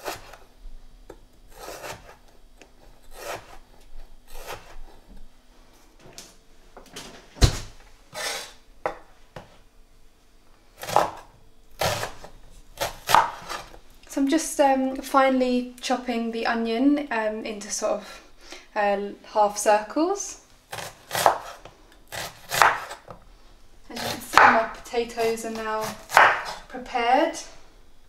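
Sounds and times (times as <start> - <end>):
cleaver cutting on wooden board: 0.0 - 0.4, 1.5 - 2.3, 3.1 - 3.6, 4.3 - 4.8, 8.1 - 8.6, 20.7 - 23.0, 23.9 - 26.6.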